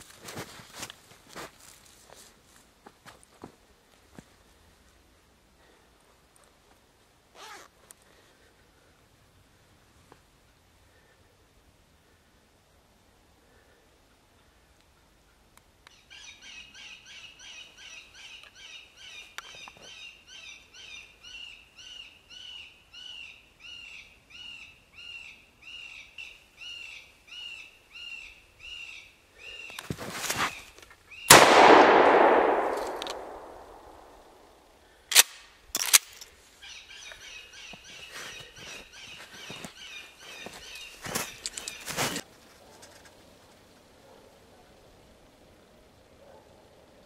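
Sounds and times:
sharp clicks: 31.3 - 34.1
shotgun blast: 31.3 - 34.4.

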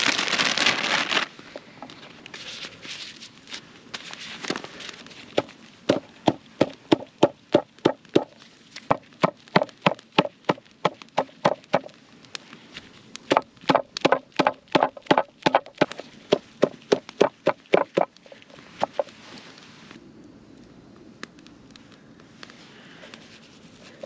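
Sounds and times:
wooden block pounding dried fish: 8.9 - 11.9, 13.3 - 18.2.

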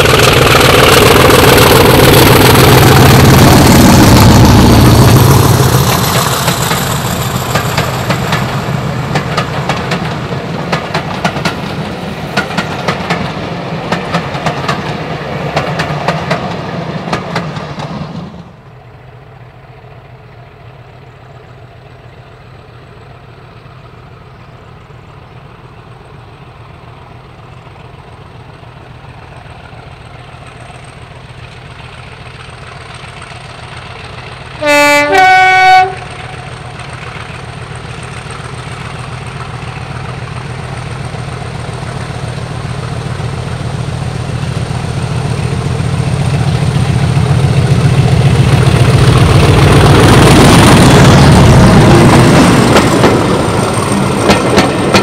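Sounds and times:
diesel locomotive engine running: 0.0 - 55.0
two-tone train horn: 34.6 - 36.6.

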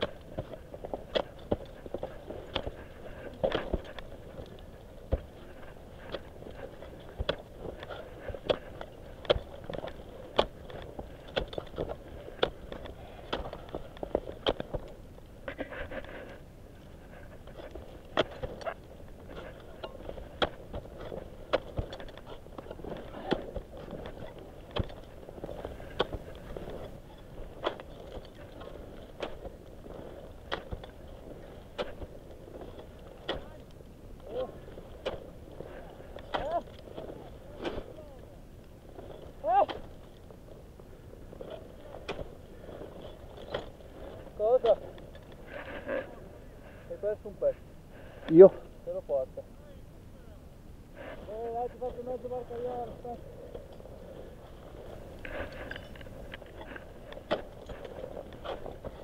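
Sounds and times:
ice axe striking snow: 0.0 - 16.0, 17.7 - 33.6, 34.2 - 38.0.

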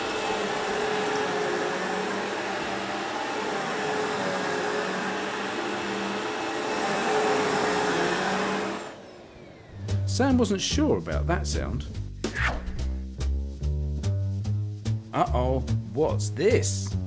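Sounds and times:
vacuum cleaner running: 0.0 - 10.0.

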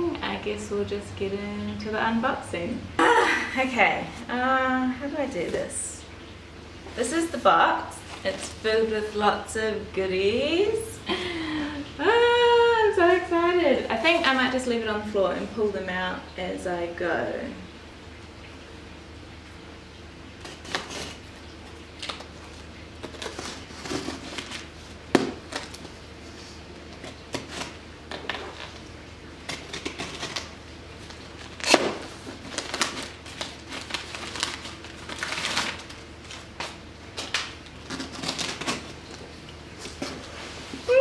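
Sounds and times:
plastic wrap crinkling: 6.9 - 9.6, 13.3 - 14.8, 20.4 - 41.0
knife slicing packing tape: 20.4 - 21.2, 31.6 - 32.1.

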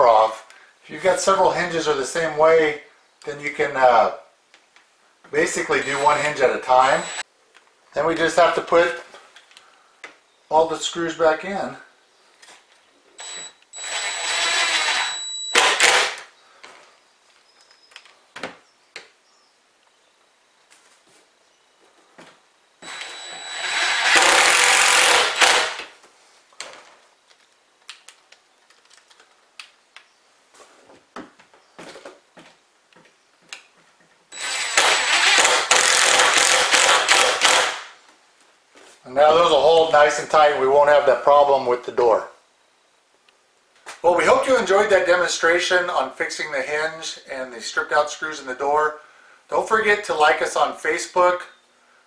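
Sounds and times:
drill driving a screw: 5.8 - 7.2, 13.2 - 16.2, 22.8 - 25.9, 34.3 - 37.9.

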